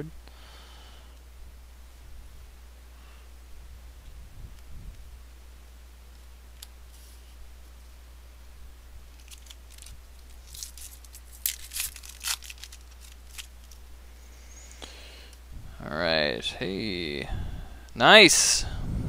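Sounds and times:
wrapper tearing and crinkling: 0:09.1 - 0:13.8.

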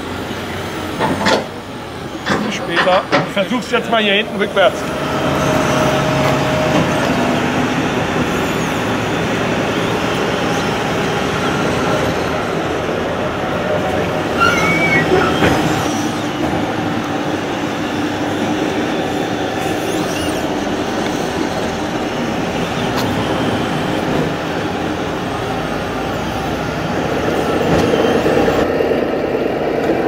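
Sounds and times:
model excavator mechanical whine: 0:00.0 - 0:29.4
short high squeaks: 0:14.3 - 0:16.5, 0:19.4 - 0:21.3.

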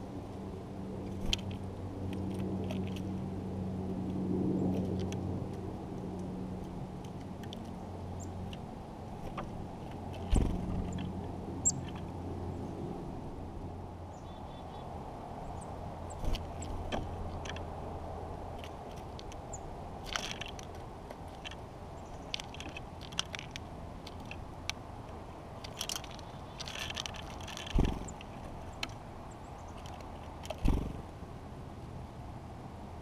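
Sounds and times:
birds pecking at wooden feeder: 0:01.0 - 0:03.2, 0:04.1 - 0:12.7, 0:15.6 - 0:31.1
faint high bird chirps: 0:14.1 - 0:16.7.

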